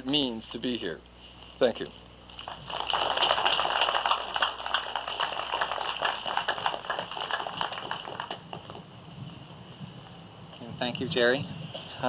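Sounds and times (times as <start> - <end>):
audience applauding: 2.4 - 8.8.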